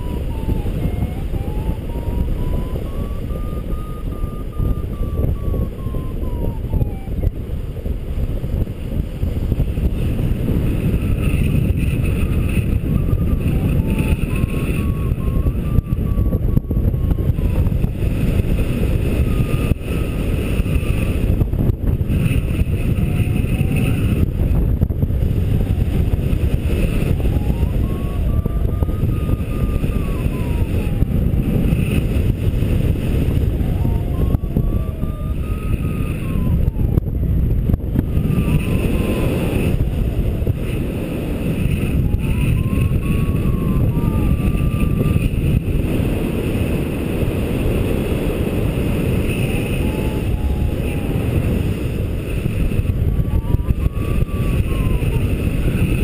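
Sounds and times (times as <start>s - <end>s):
variometer beeping: 0.0s - 7.3s
strong wind on microphone: 0.0s - 56.0s.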